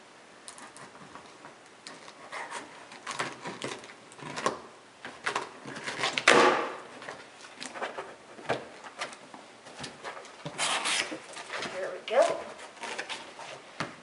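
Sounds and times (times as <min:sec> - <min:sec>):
cardboard scraping and rustling: 0:00.7 - 0:04.5, 0:05.1 - 0:13.8
cardboard tearing rasp: 0:05.2 - 0:06.6, 0:10.0 - 0:13.6.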